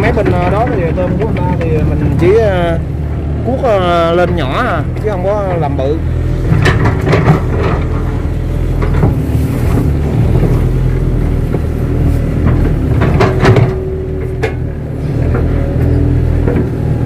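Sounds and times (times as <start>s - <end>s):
excavator diesel engine running: 0.0s - 17.0s
metallic clanks: 6.4s - 10.7s, 12.4s - 16.9s.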